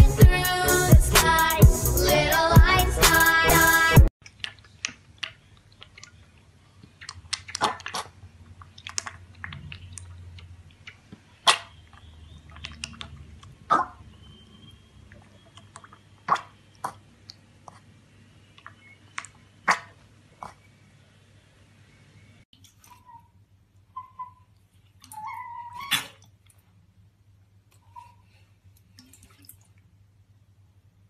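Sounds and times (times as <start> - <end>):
piglet slurping milk: 4.2 - 20.7.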